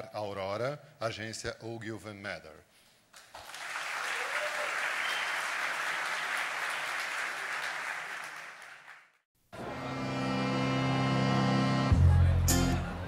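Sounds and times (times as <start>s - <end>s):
audience applauding: 3.2s - 9.2s.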